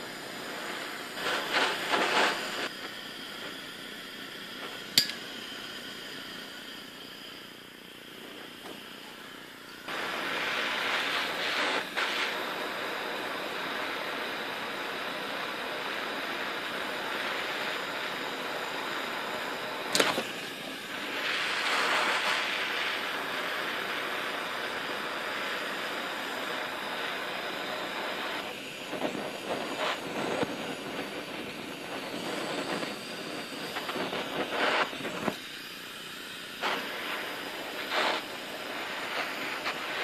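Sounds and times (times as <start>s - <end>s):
flame sputtering: 0.0s - 40.0s
gas torch hissing: 0.0s - 40.0s
sharp click: 19.9s - 20.3s.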